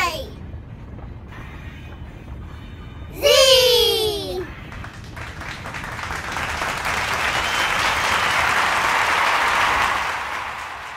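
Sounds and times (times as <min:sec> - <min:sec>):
applause: 0:04.7 - 0:10.9.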